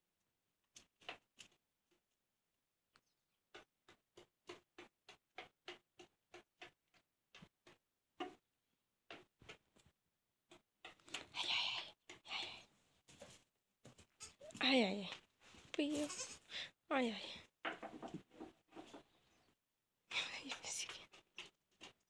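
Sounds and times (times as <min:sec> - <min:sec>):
small hooves tapping on dirt: 0:02.9 - 0:08.4, 0:09.1 - 0:16.4, 0:20.2 - 0:22.0.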